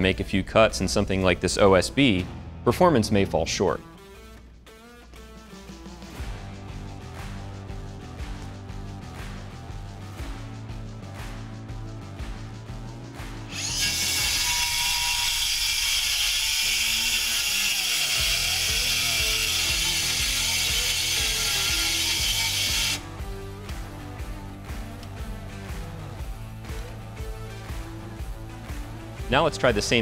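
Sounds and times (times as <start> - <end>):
background music: 0.0 - 30.0
circular saw cutting wood: 13.4 - 23.2.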